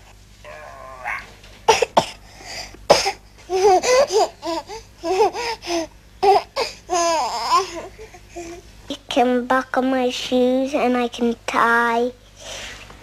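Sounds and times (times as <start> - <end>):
young child's high voice: 8.9 - 12.2.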